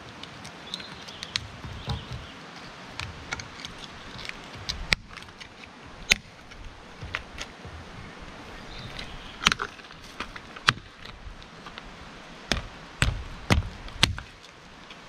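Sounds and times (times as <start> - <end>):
sharp knocks and thuds: 1.3 - 2.4, 3.0 - 11.1, 12.5 - 14.4.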